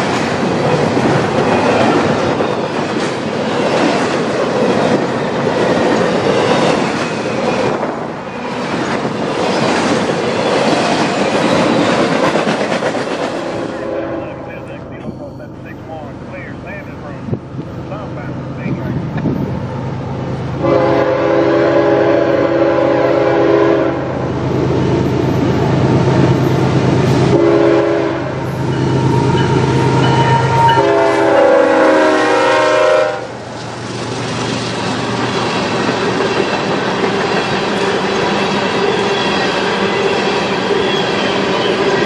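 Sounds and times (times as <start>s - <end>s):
train wheels clacking on rails: 0.0s - 13.8s, 33.6s - 42.0s
locomotive engine drone: 13.4s - 22.4s
locomotive air horn blasts: 13.6s - 14.7s, 20.6s - 24.2s, 27.3s - 33.4s.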